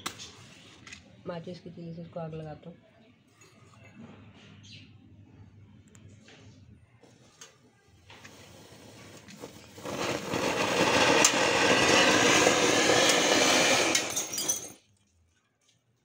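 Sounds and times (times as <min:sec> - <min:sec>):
firework hissing spray: 0:08.2 - 0:14.7.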